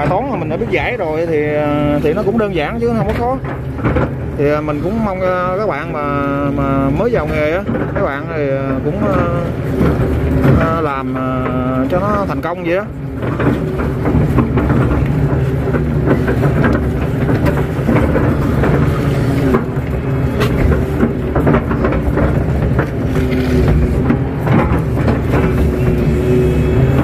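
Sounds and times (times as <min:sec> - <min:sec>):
excavator diesel engine and hydraulics: 0:00.0 - 0:27.0
short knocks: 0:06.5 - 0:27.0.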